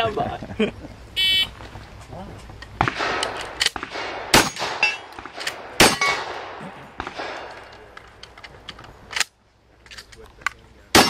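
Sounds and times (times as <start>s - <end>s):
gunshots: 2.8s - 7.8s
steel targets ringing: 5.8s - 6.3s.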